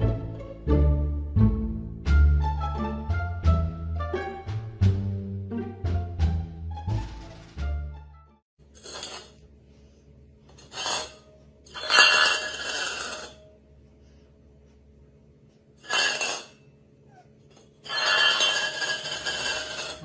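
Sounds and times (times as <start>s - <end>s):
metal bowl scraping on tiled floor: 8.7s - 9.4s, 10.5s - 13.5s, 15.8s - 16.7s, 17.5s - 20.0s.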